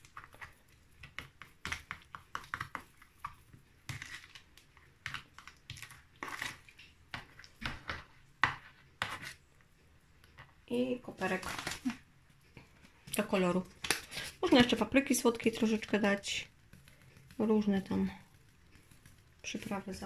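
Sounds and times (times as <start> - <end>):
fork clicking and scraping tub: 0.0 - 9.4.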